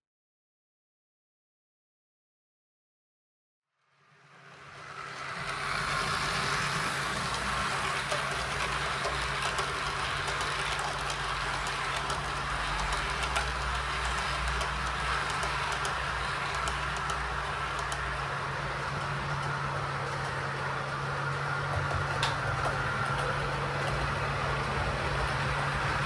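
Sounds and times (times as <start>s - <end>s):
model train wheels rolling on track: 3.8s - 26.0s
small clicks: 7.2s - 18.2s.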